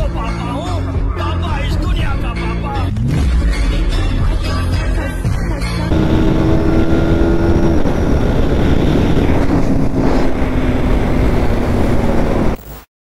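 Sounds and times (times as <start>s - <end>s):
motorcycles passing by: 5.9s - 12.6s
wind noise: 5.9s - 12.6s.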